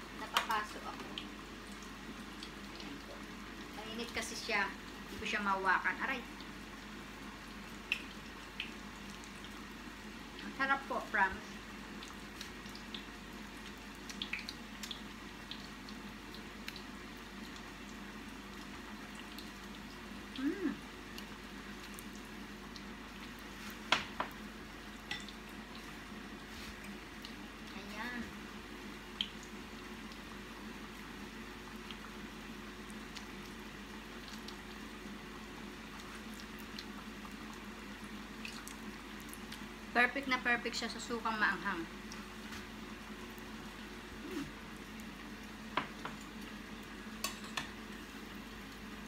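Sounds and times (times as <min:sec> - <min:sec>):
hot oil sizzling and popping: 0:00.0 - 0:49.0
low steady hum: 0:00.0 - 0:49.0.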